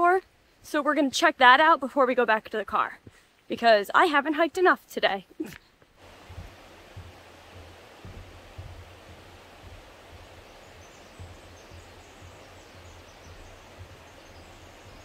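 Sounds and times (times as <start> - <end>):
creek rushing: 6.0 - 15.0
low soft thumps: 6.0 - 15.0
high bird chirps: 9.6 - 15.0.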